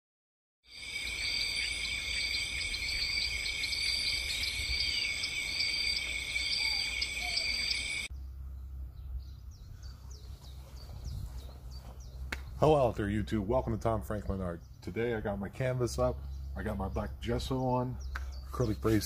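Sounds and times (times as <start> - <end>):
shrill insect chorus: 0.7 - 8.1.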